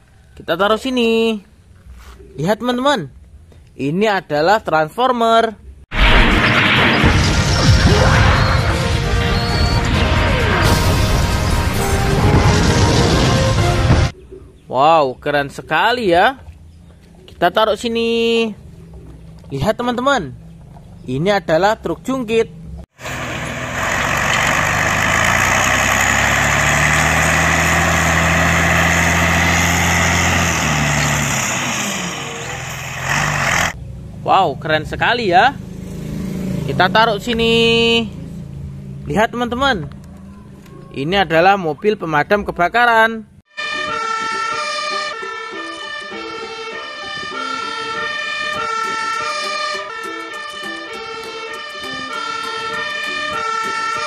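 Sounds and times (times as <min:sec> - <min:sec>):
two-tone fire truck siren: 0:23.0 - 0:33.8, 0:43.5 - 0:54.0
diesel engine running: 0:23.0 - 0:34.2.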